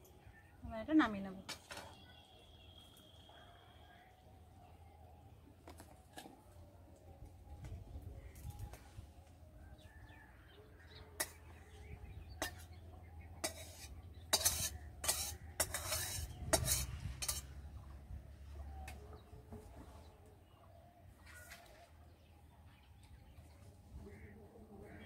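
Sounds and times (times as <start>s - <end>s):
metal spatula scraping a wok: 13.4s - 17.6s.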